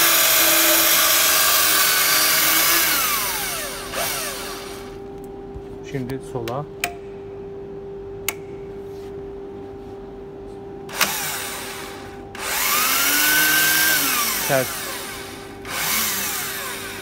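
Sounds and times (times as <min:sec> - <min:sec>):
electric drill motor whine: 0:00.0 - 0:05.0, 0:10.9 - 0:17.0.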